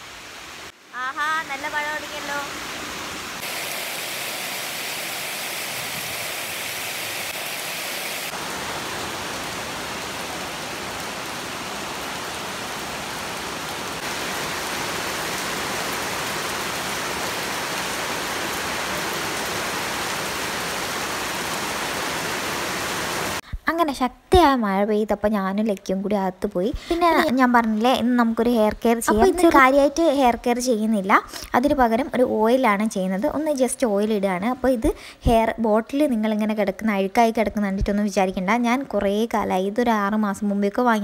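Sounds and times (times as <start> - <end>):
heavy rain pouring: 0.0 - 23.4, 26.8 - 30.7.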